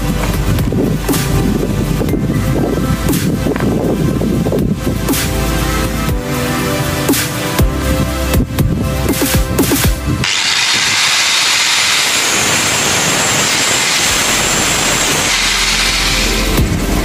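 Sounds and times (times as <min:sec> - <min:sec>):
angle grinder cutting steel: 0:10.2 - 0:17.0.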